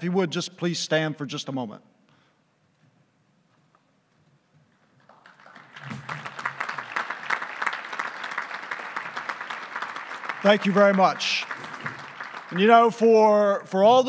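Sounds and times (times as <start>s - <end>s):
audience applauding: 5.0s - 13.6s.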